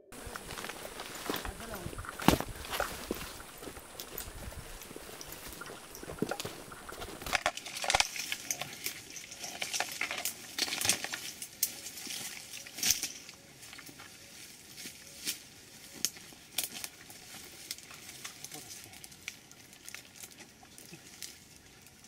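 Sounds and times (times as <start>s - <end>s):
rustling of leaves and undergrowth: 0.0s - 22.0s
clatter of hard gear: 5.9s - 11.4s.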